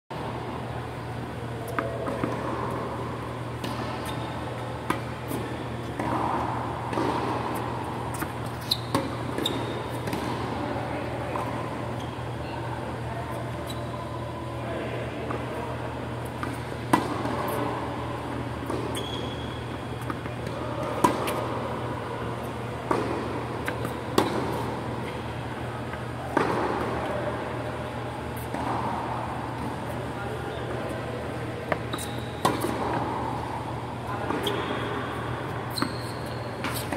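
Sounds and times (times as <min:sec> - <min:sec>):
ventilation fans humming: 0:00.1 - 0:36.9
balls bouncing on hard court: 0:01.6 - 0:12.2, 0:16.3 - 0:21.7, 0:22.7 - 0:25.2, 0:25.9 - 0:27.2, 0:31.6 - 0:36.9
tennis balls struck by rackets: 0:01.7 - 0:10.6, 0:16.3 - 0:19.2, 0:20.0 - 0:21.7, 0:22.8 - 0:25.2, 0:25.9 - 0:27.2, 0:31.6 - 0:35.0
tennis ball struck by rackets: 0:08.2 - 0:10.6, 0:16.4 - 0:17.5, 0:20.0 - 0:21.4, 0:22.9 - 0:24.8, 0:32.4 - 0:33.2.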